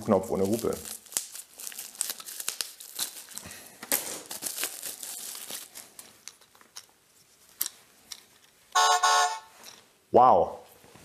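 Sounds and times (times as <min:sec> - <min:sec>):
plastic packaging crinkling: 0:00.0 - 0:06.9.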